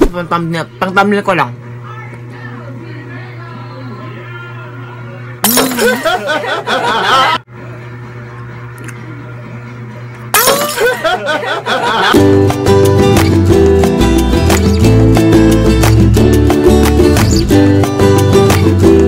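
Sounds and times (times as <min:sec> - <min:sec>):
glass shattering: 0:05.4 - 0:06.2, 0:10.4 - 0:11.0
plucked guitar music: 0:12.2 - 0:19.0.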